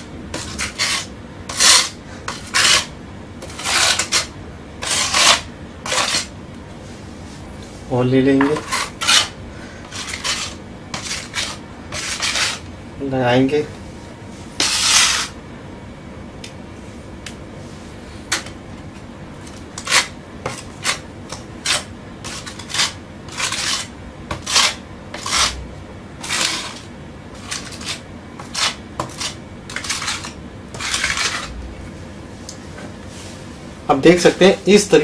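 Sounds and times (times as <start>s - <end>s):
putty knife scraping wall: 0.0s - 6.3s, 8.4s - 12.6s, 14.6s - 15.4s, 19.8s - 25.6s, 26.2s - 31.6s.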